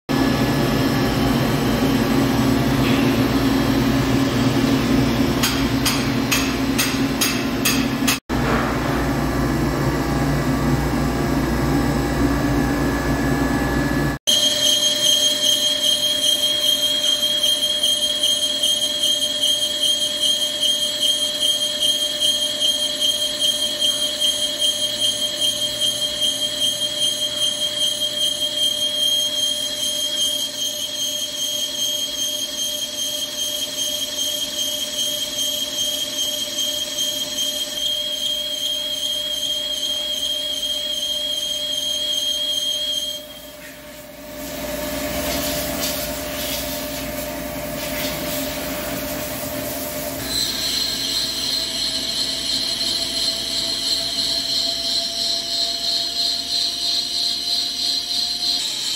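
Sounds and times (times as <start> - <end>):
lathe running hum: 0.1 - 8.2, 8.8 - 58.9
lathe cutting squeal: 13.0 - 58.9.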